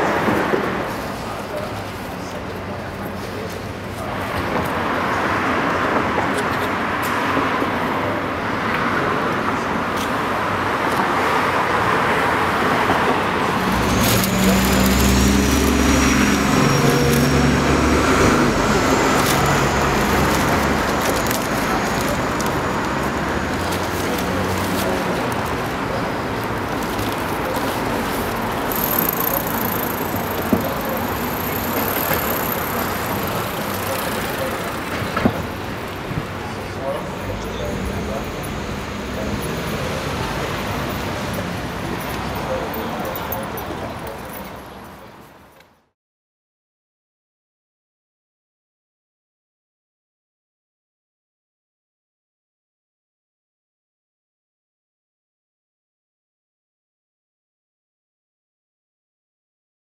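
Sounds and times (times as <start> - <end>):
passing cars: 0.0 - 45.6
vehicle engine rumbling past: 13.3 - 43.5.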